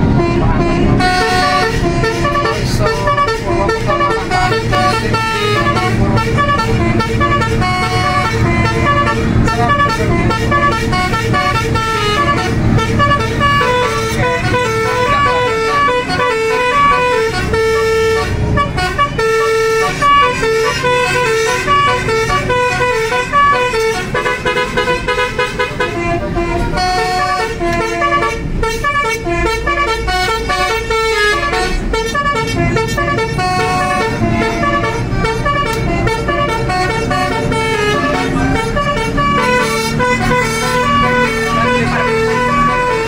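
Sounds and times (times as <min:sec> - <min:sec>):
bus engine rumble: 0:00.0 - 0:43.0
melodic bus horn: 0:00.0 - 0:43.0.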